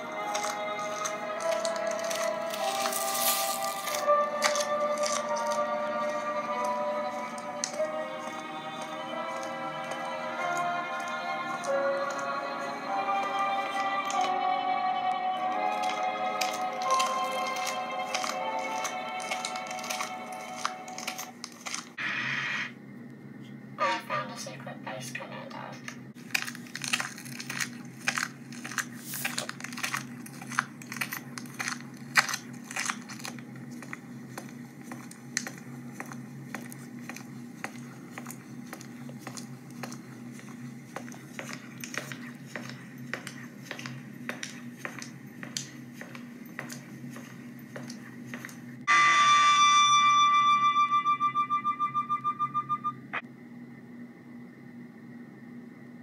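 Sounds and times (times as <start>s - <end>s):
crackling clicks: 15.6s - 22.0s, 25.8s - 46.8s.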